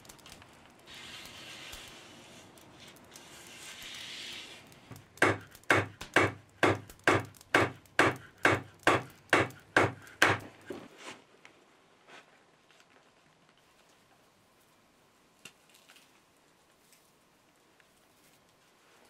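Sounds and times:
hatchet pounding on wooden block: 0:05.2 - 0:10.5.

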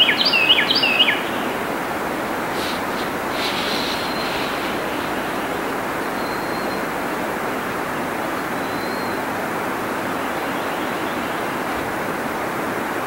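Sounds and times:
waterfall rushing: 0:01.3 - 0:08.6
faint high whistles: 0:02.5 - 0:07.0.

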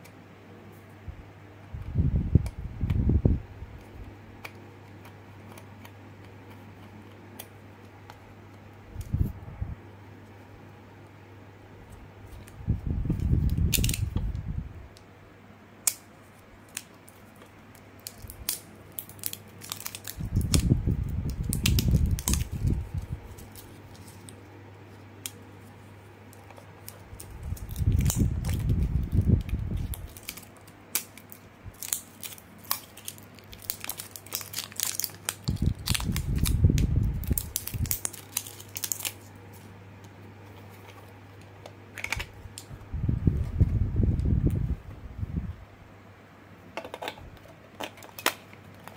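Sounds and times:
steady low hum: 0:00.0 - 0:48.9
low rumbling handling noise: 0:40.4 - 0:45.8.

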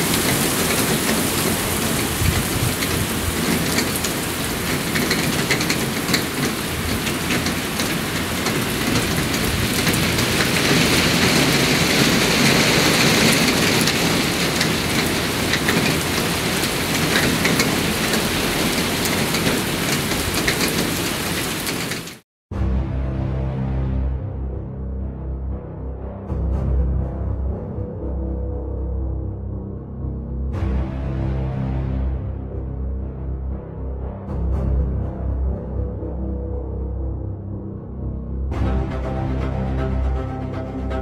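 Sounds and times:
gusting wind rumble: 0:00.0 - 0:22.2
heavy rain hissing: 0:00.0 - 0:22.2
raindrops clicking close by: 0:00.0 - 0:22.2.

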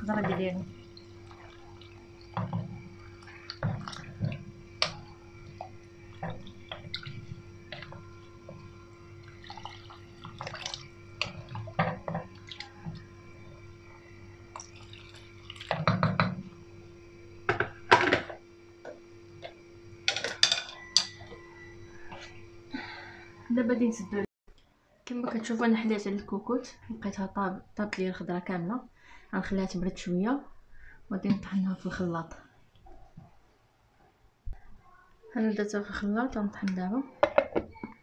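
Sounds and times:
faint steady hum: 0:00.0 - 0:38.0
water pouring into a pot: 0:00.7 - 0:16.2.

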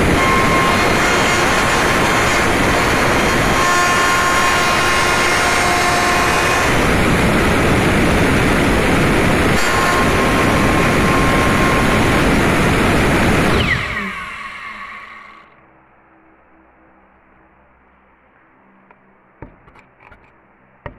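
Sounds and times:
router cutting aluminium: 0:00.0 - 0:15.4.

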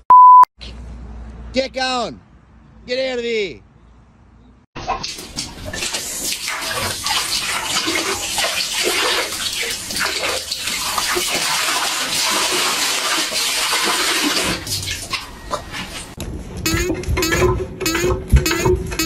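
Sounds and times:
water gushing and splashing: 0:04.8 - 0:15.3.

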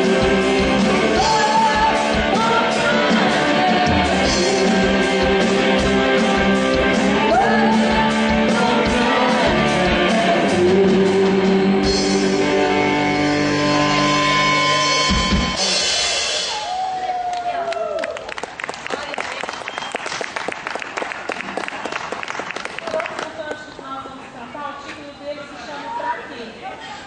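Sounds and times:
woman singing into a microphone: 0:00.0 - 0:05.8, 0:07.2 - 0:12.4
guitar: 0:00.0 - 0:16.6.

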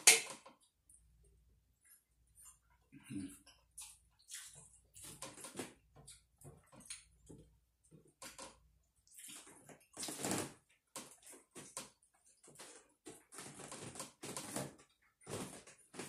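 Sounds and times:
person chewing food: 0:01.8 - 0:08.2.

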